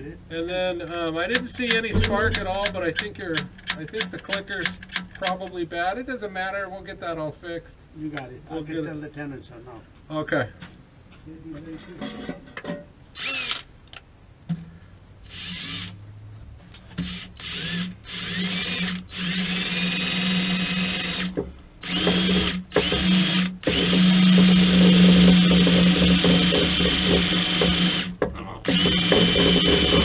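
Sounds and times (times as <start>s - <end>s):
cordless drill boring metal: 13.2s - 13.6s, 15.3s - 16.0s, 17.1s - 30.0s.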